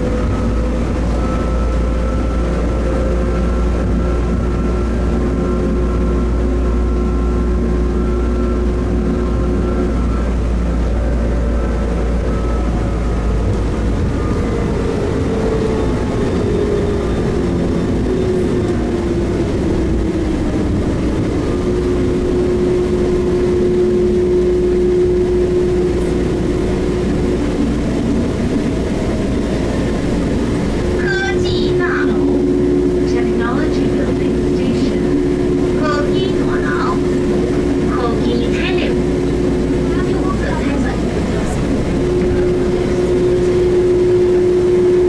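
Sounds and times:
metro train running with motor whine: 0.0s - 45.0s.

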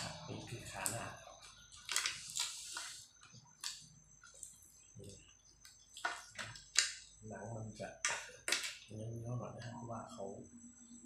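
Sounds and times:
grilled meat tearing with crackles: 1.7s - 3.0s.

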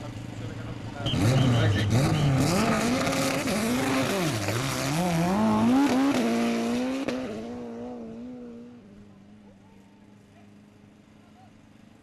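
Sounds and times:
drag racing car engine revving: 0.4s - 9.1s.

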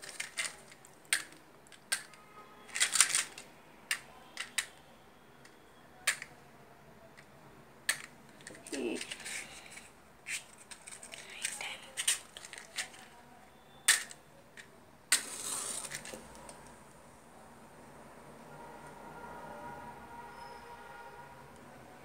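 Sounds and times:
match striking scratch: 15.1s - 16.2s.

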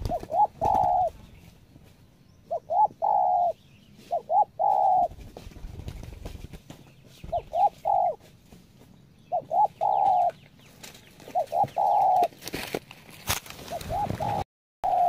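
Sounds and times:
dove cooing: 0.0s - 1.2s, 2.4s - 5.2s, 7.2s - 8.3s, 9.3s - 10.4s, 11.2s - 12.3s, 13.6s - 15.0s
brief rustle: 12.2s - 14.4s.

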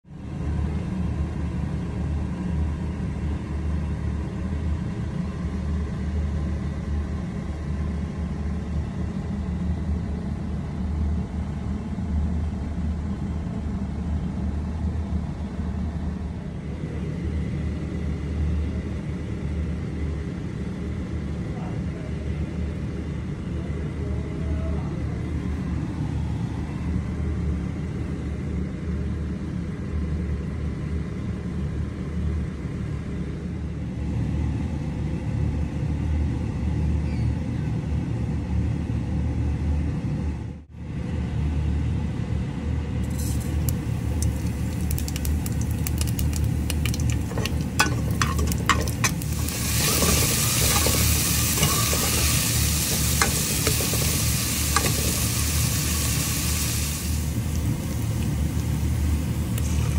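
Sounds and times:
steady low rumble: 42.8s - 59.9s.

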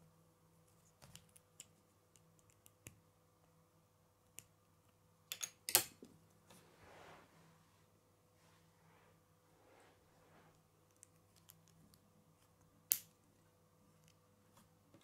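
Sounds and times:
soft rustle: 6.4s - 11.9s.

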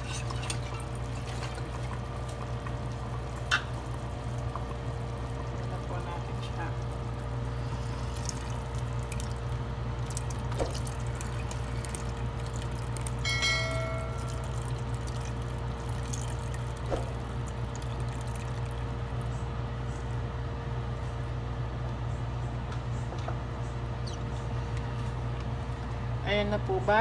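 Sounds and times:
wooden spoon stirring: 0.0s - 7.0s
slurry pouring into sauce: 0.0s - 13.4s, 14.1s - 19.5s
low hum: 0.0s - 26.2s
ringing ding: 13.2s - 14.5s.

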